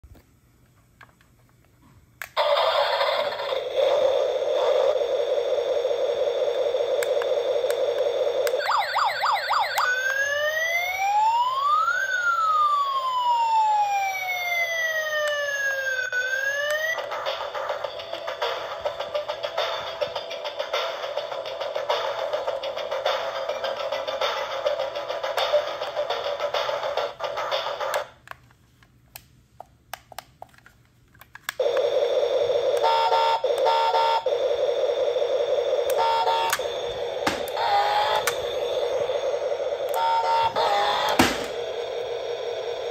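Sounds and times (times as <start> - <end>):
toy electronic siren wailing: 2.4 - 17.3, 31.6 - 42.9.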